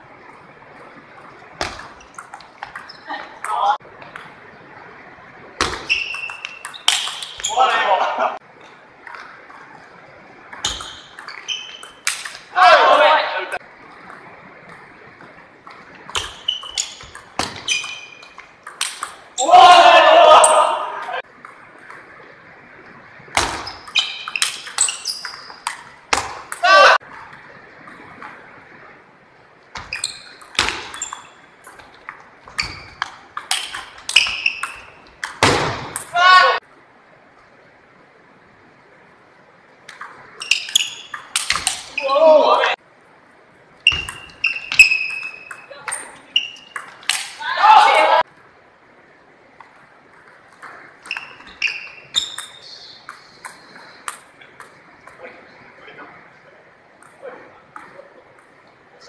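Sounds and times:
table tennis ball hits: 0:05.6 - 0:07.6, 0:10.5 - 0:12.5, 0:15.7 - 0:19.8, 0:23.4 - 0:27.3, 0:29.8 - 0:36.2, 0:43.9 - 0:48.0.

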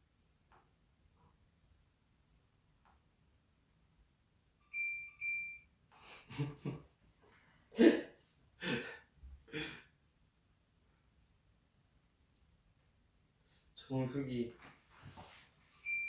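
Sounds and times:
man laughing: 0:06.0 - 0:06.9, 0:08.6 - 0:09.8.

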